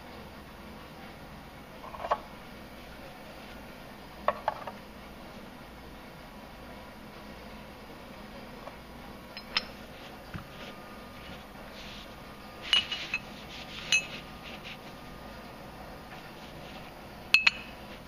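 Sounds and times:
metal bars clinking: 9.3 - 9.8, 12.6 - 13.3, 13.9 - 14.2, 17.3 - 17.8.

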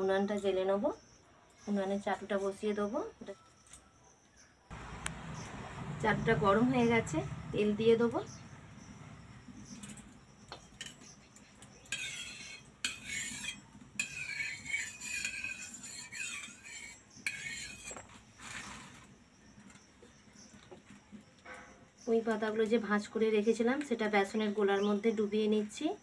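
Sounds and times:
metal spatula scraping griddle: 10.8 - 19.1.

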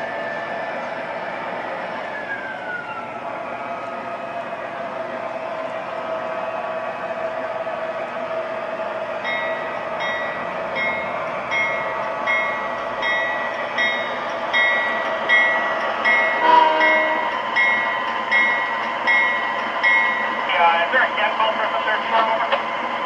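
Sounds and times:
locomotive bell dinging: 9.2 - 20.8
train horn blast: 16.4 - 17.4.

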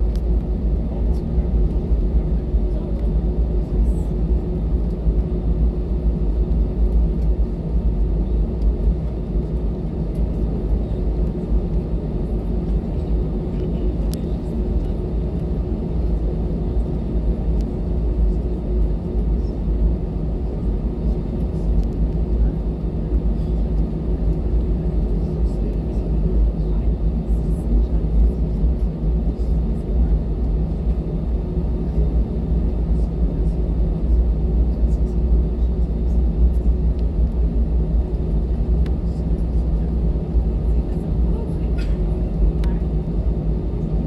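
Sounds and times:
jet engine cabin rumble: 0.0 - 44.0.

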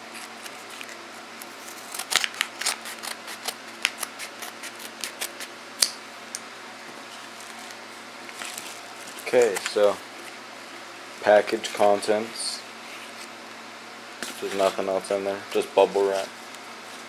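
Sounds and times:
scissors cutting envelope: 0.0 - 5.5, 7.4 - 9.9.

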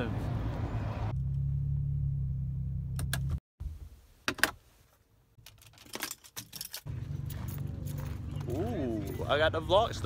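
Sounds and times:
car keys jangling: 5.4 - 8.1.

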